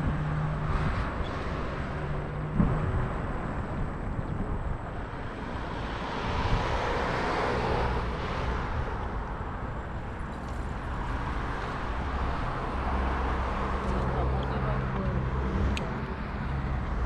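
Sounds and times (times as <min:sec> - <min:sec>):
wind rush: 0:00.0 - 0:17.0
vehicle passing by: 0:05.2 - 0:09.2.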